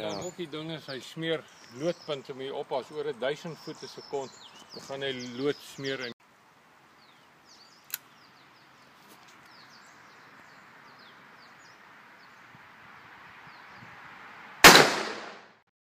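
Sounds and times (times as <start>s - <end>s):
birds chirping: 0.0s - 14.2s
low hiss: 0.0s - 15.3s
revolver gunshot: 14.6s - 15.6s.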